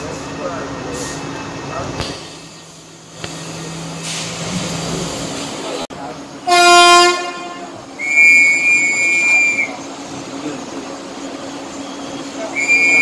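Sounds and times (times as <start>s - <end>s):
rumble of moving train: 0.0s - 13.0s
train horn blast: 6.4s - 9.7s.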